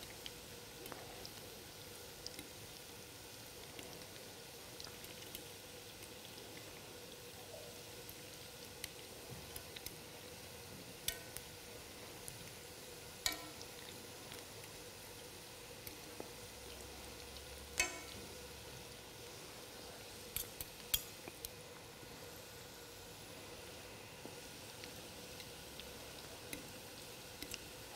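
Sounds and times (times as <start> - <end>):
meatballs sizzling in oil: 0.0 - 27.9
forks clicking against pan: 13.2 - 13.6, 17.8 - 18.2, 20.4 - 21.1.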